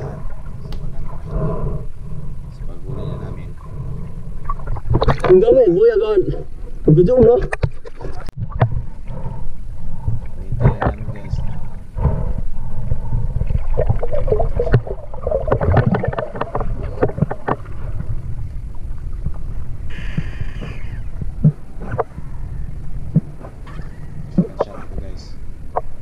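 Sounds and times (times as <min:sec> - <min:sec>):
underwater low rumble: 0:00.0 - 0:26.0
underwater clicks and bubbly crackling: 0:04.4 - 0:05.5, 0:07.2 - 0:08.8, 0:13.4 - 0:19.6.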